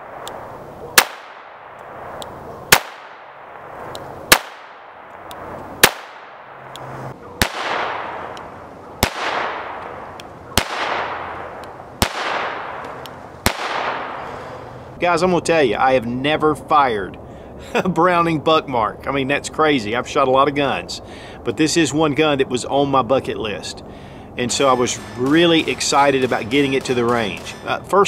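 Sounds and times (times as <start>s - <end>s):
pistol shots: 0.0s - 14.5s, 24.6s - 27.7s.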